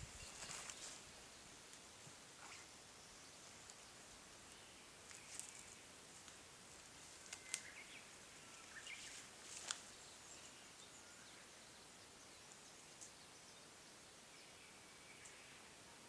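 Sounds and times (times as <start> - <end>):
faint high chirps: 0.0 - 1.0
twigs snapping under footsteps: 5.1 - 8.0, 8.6 - 9.9.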